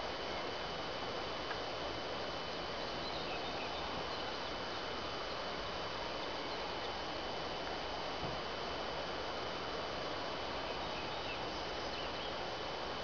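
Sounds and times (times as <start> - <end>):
outdoor background hiss: 0.0 - 13.0
faint bird chirps: 2.8 - 5.6, 10.6 - 12.4.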